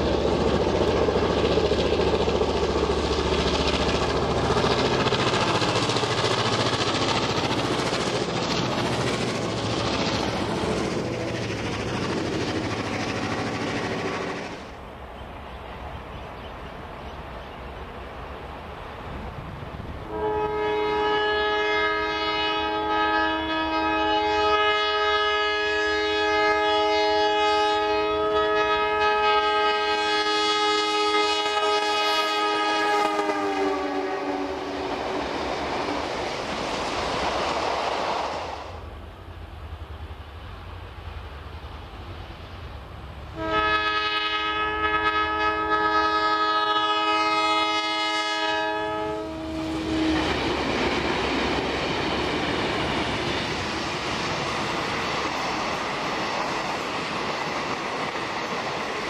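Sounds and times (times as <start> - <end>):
train passing: 0.0 - 59.0
locomotive horn blast: 20.1 - 34.8, 43.4 - 50.4.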